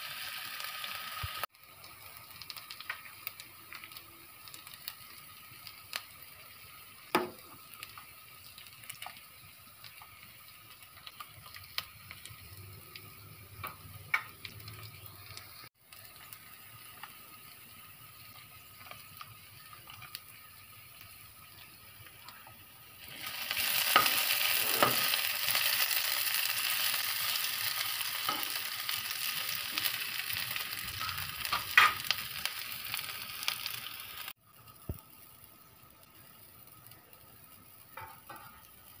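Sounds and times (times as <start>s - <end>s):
broth boiling and hissing: 0.0s - 39.0s.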